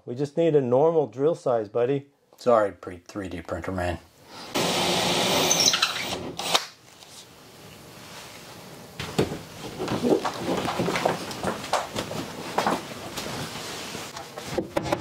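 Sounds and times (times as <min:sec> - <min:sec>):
cordless drill motor running: 0:04.6 - 0:06.6.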